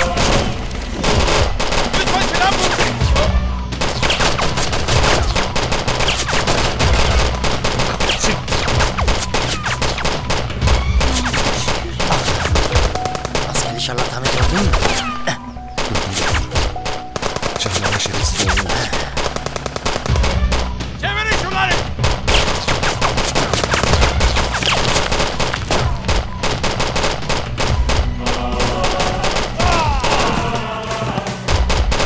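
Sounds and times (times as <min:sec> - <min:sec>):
automatic rifle fire: 0:00.0 - 0:03.0, 0:03.8 - 0:15.0, 0:22.0 - 0:30.4
dramatic music: 0:00.0 - 0:32.0.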